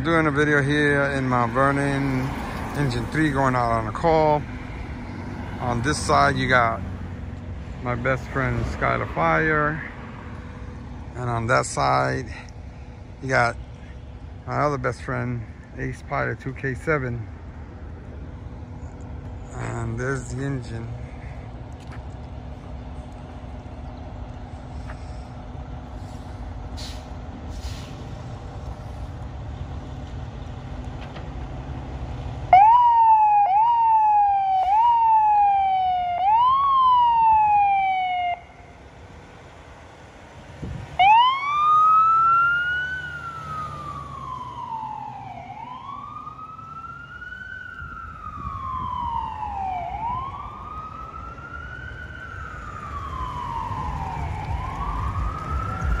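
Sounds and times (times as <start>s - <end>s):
fire engine siren wailing: 0.0s - 12.5s, 13.6s - 56.0s
low engine rumble: 0.0s - 56.0s.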